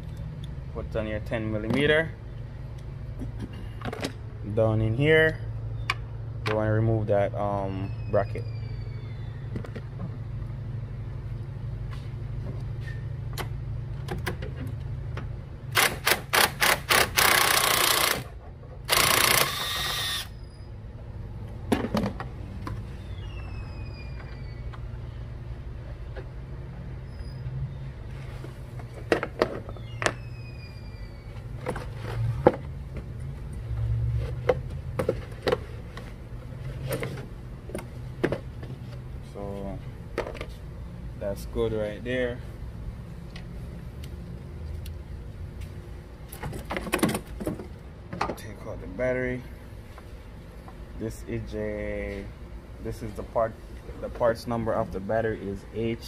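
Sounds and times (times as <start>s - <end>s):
ratchet wrench clicking: 15.8s - 18.2s, 18.9s - 20.3s.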